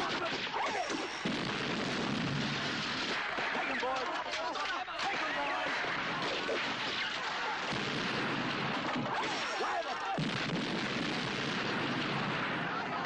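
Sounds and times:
blasts and crashes: 0:00.0 - 0:04.1, 0:05.0 - 0:13.0
men yelling: 0:07.2 - 0:07.7, 0:09.0 - 0:10.2
deep heavy blast: 0:07.6 - 0:08.8, 0:10.2 - 0:13.0.

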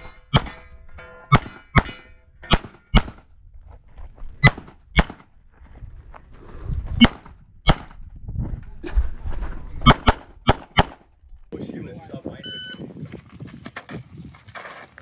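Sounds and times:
pistol shots: 0:01.3 - 0:03.2, 0:04.4 - 0:05.3, 0:07.0 - 0:08.0, 0:09.9 - 0:11.0.

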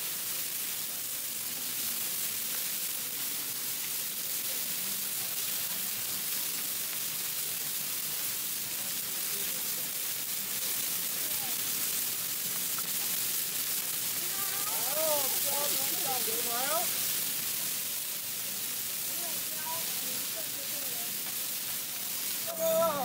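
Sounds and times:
meat sizzling on griddle: 0:00.0 - 0:23.0.

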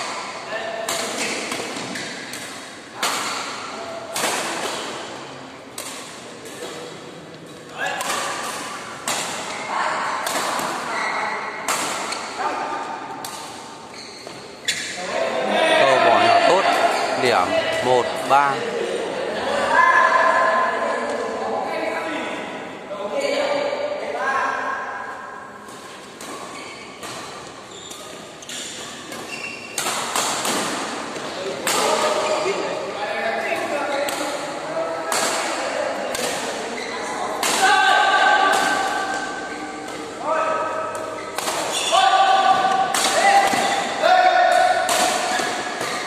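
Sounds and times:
rackets hitting shuttlecock: 0:00.1 - 0:05.0, 0:07.8 - 0:10.9, 0:25.7 - 0:32.1, 0:37.3 - 0:40.1, 0:40.8 - 0:46.0
shoes squeaking on court floor: 0:09.3 - 0:09.8, 0:10.7 - 0:12.3, 0:13.8 - 0:15.0, 0:25.8 - 0:30.0, 0:36.6 - 0:37.4, 0:41.0 - 0:42.9, 0:45.3 - 0:46.0.

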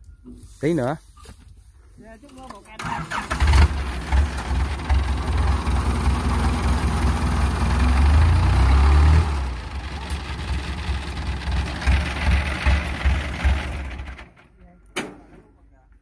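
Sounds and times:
diesel engine rumbling: 0:02.6 - 0:14.9.

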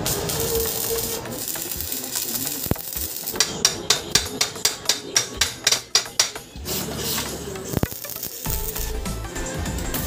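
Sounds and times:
hammer strikes on steel: 0:00.0 - 0:08.0
welding arc crackling: 0:00.0 - 0:10.0.

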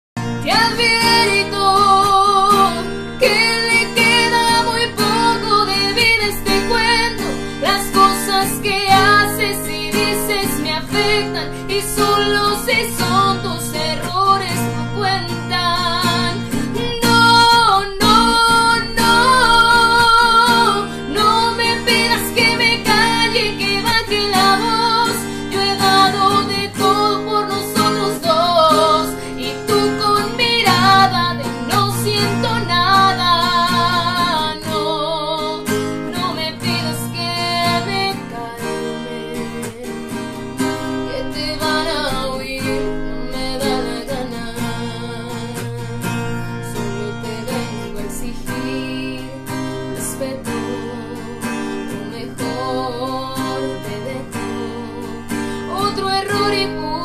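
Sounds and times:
acoustic guitar strumming: 0:00.2 - 0:57.0
woman singing a ballad: 0:00.2 - 0:57.0.

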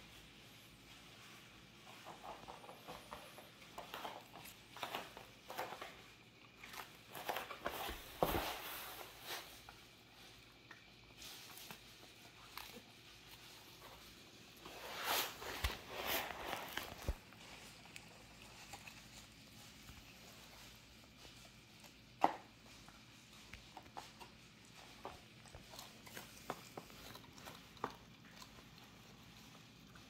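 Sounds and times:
dog crunching lettuce: 0:11.2 - 0:30.0.

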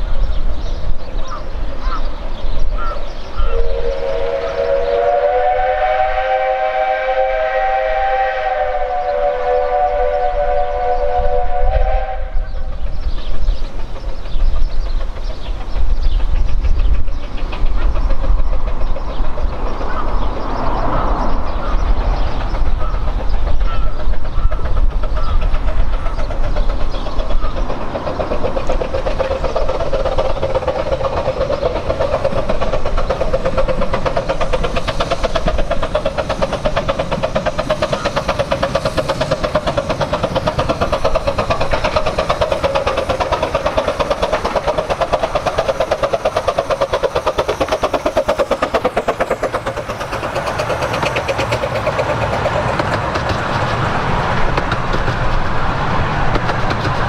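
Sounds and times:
steam train running past: 0:00.0 - 0:57.0.

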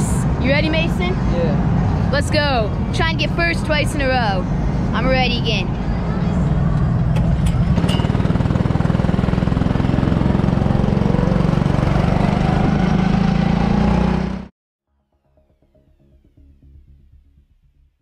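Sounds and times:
go-kart engine running: 0:06.8 - 0:14.4.

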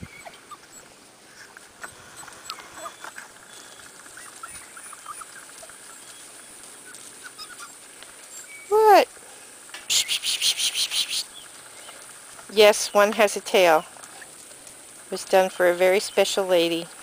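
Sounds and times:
puppies squeaking: 0:00.0 - 0:00.9, 0:01.8 - 0:08.5
paws shifting gravel: 0:00.3 - 0:09.7.

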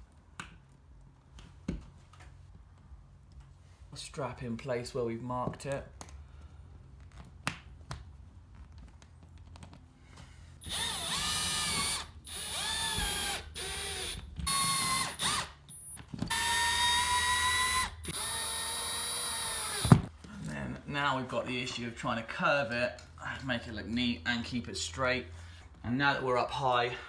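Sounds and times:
cordless drill whining: 0:10.6 - 0:15.5, 0:16.3 - 0:20.0.

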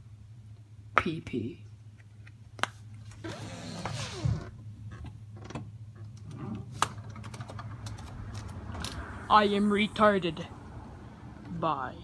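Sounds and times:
sliding door scraping along track: 0:03.2 - 0:04.5.

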